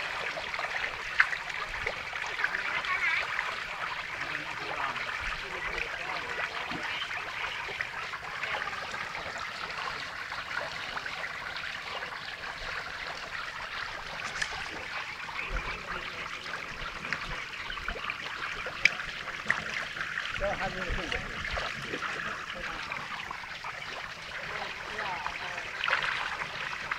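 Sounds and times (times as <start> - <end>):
fish splashing at pond surface: 0.0 - 26.9
trickling water: 0.0 - 26.9.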